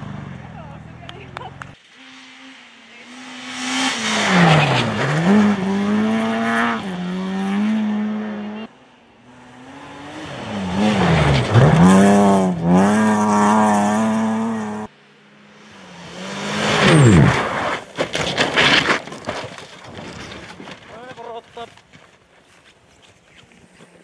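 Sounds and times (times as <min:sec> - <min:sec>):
rally car engine revving: 0:01.6 - 0:14.9, 0:15.6 - 0:18.9.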